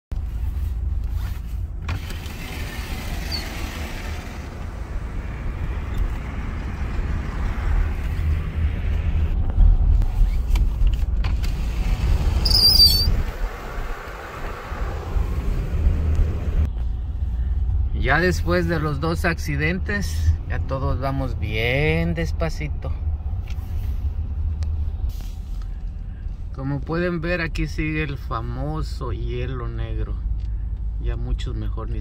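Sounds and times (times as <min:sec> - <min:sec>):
tyre and engine rumble: 0:00.1 - 0:32.0
high squeak: 0:12.4 - 0:13.2.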